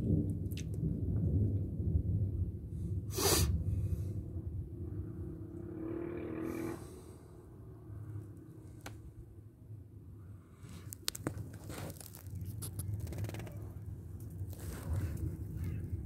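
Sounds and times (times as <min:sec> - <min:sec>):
distant thunder rumble: 0:00.0 - 0:08.3, 0:12.5 - 0:16.0
sharp hissing burst: 0:03.1 - 0:03.6.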